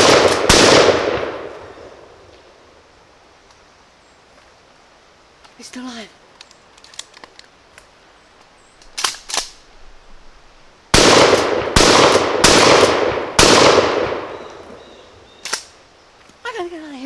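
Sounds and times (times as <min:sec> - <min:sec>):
shotgun shots echoing: 0:00.0 - 0:01.8, 0:10.9 - 0:14.6.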